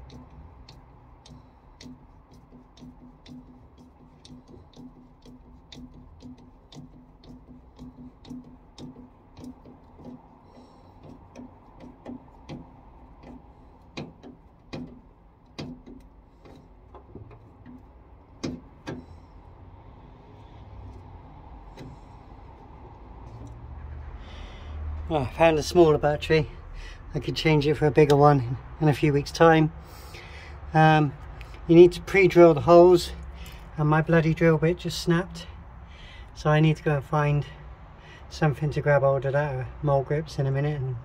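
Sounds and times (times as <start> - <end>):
knocks: 0.0 - 17.8, 18.4 - 19.1
hand tool clicking: 0.0 - 23.6.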